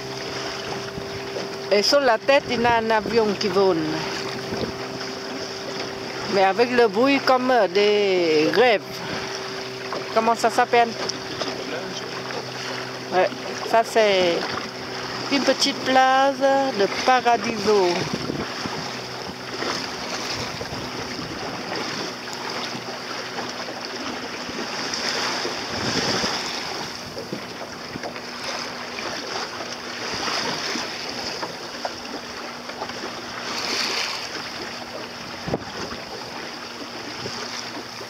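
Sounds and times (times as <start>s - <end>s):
wind on microphone: 0.0s - 9.9s, 14.2s - 22.9s, 24.4s - 28.2s, 34.9s - 37.5s
water rushing along boat hull: 0.0s - 38.0s.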